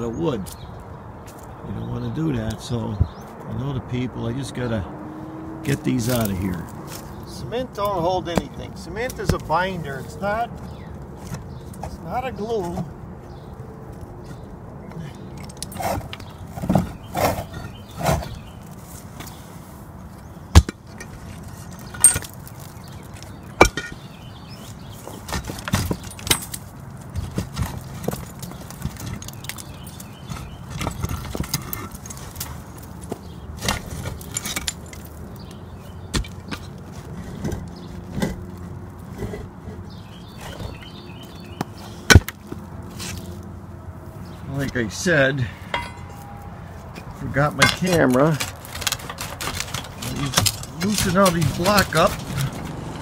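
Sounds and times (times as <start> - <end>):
concrete blocks knocking and scraping: 5.7 - 12.9, 15.4 - 19.4, 20.5 - 43.3, 45.5 - 53.0.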